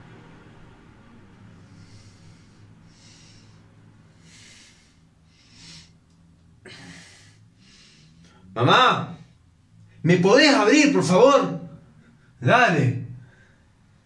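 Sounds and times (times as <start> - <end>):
faint low hum: 0.0 - 14.0
man breathing: 1.3 - 8.6, 13.2 - 14.0.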